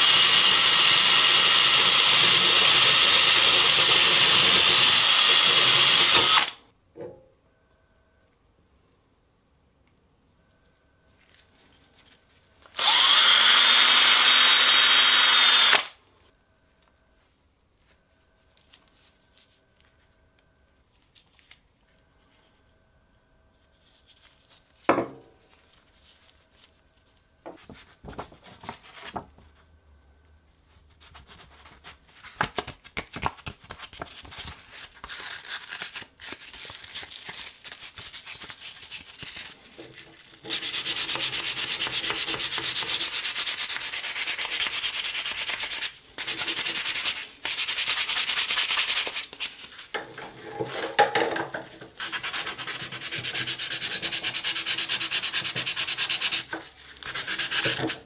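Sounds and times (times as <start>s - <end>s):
abrasive paper rubbing on steel: 37.1s - 49.9s.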